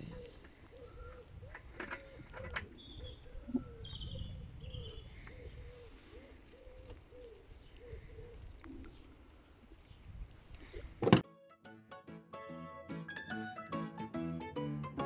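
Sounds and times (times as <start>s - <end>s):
pigeon cooing: 0.0s - 9.0s
bird chirps: 2.0s - 5.6s.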